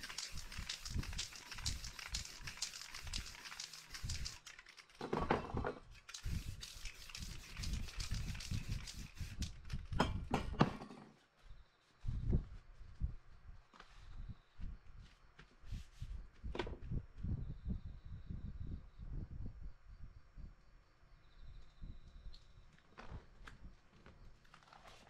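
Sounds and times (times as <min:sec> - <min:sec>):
spray paint bursts: 0:00.0 - 0:04.8, 0:05.9 - 0:09.6
spray can rattling: 0:00.0 - 0:05.0, 0:05.9 - 0:09.9.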